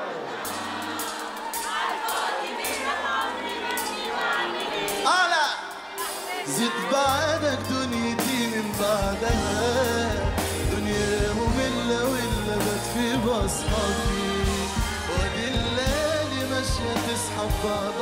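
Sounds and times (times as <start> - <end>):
drums: 0.0 - 18.0
man singing: 6.4 - 18.0
bass line: 7.1 - 18.0.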